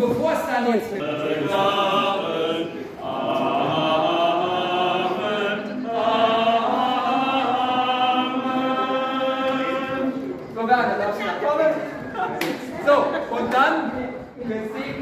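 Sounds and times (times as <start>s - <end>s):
voices singing in unison: 0.7s - 10.6s.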